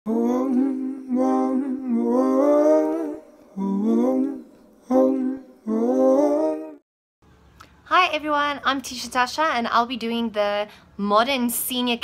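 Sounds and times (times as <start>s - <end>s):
person singing slow melody: 0.1s - 6.8s.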